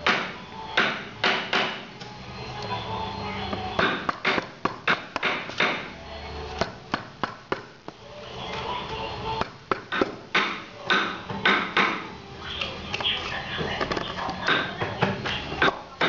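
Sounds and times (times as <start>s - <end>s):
mallet knocking chisel into wood: 0.0s - 1.8s, 3.5s - 5.9s, 9.4s - 12.1s
background music: 0.0s - 16.0s.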